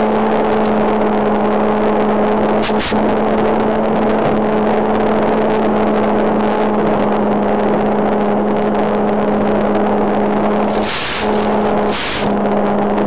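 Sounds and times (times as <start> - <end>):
model airplane motor buzzing: 8.2 - 13.0
rushing noise: 9.2 - 13.0.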